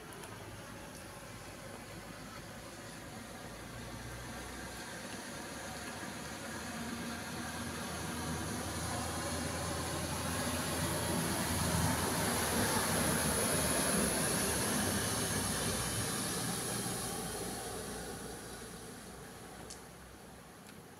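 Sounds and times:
car driving through floodwater: 0.0 - 20.5.

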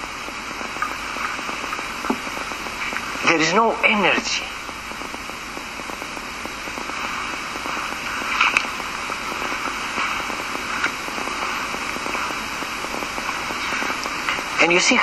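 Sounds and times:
crackling static hiss: 0.0 - 15.0.

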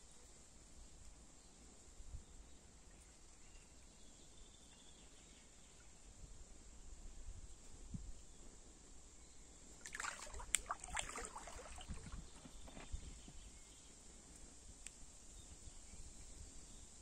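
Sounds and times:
water splashing and dribbling: 9.8 - 12.8
insects chirring: 9.8 - 13.8.

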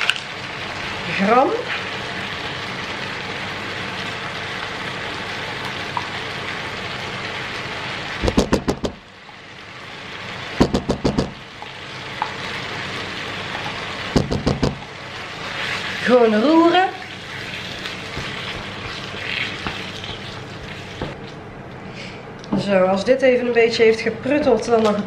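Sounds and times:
food sizzling in a frying pan: 0.0 - 21.2
sharp knocks: 8.2 - 9.0, 10.6 - 11.4, 14.2 - 14.8.

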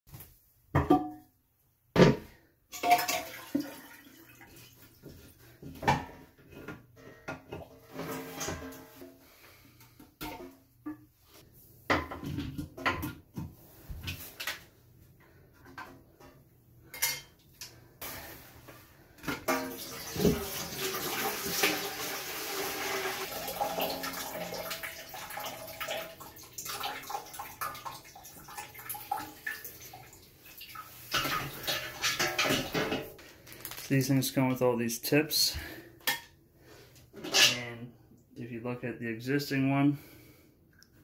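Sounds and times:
water splashing into bucket: 2.7 - 5.0, 19.5 - 33.0.

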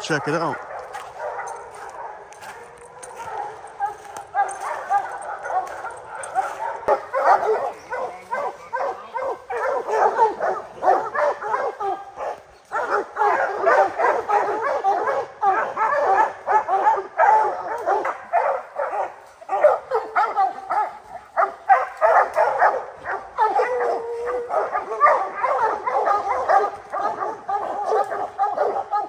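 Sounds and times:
hounds barking and bawling: 0.0 - 29.0.

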